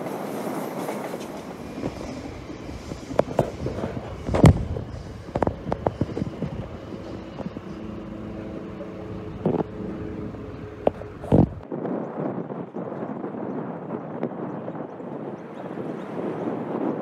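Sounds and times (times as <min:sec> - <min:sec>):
train wheels clunking over rail joints: 0:00.0 - 0:11.6
steady low hum: 0:01.6 - 0:11.6.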